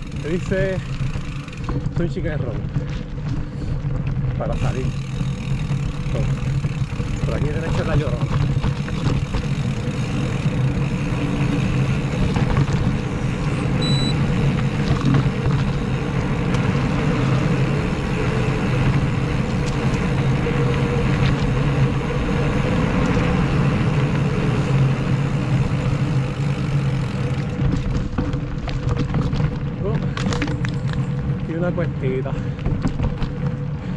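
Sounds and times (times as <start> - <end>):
bike tyre noise: 0.0 - 33.9
short high beep: 13.8 - 14.2.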